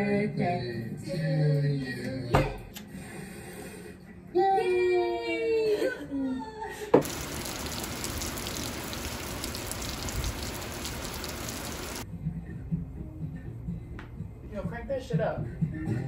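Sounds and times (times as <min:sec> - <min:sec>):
steady rain falling: 0:07.0 - 0:12.0.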